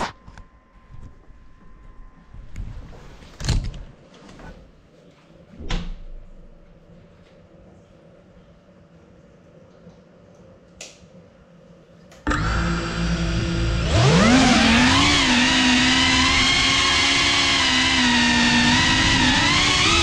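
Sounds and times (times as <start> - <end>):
drone motors whining: 12.3 - 20.0.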